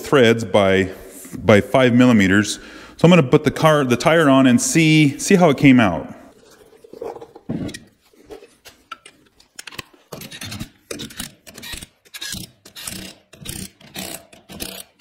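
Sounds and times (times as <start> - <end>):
cordless ratchet whirring: 10.9 - 15.0.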